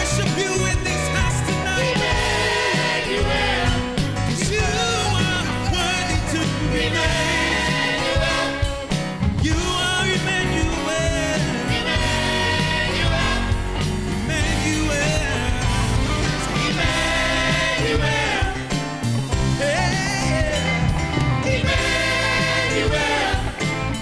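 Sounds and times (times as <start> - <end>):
worship team singing: 0.0 - 20.6, 21.4 - 24.0
live band with keyboard: 0.0 - 24.0.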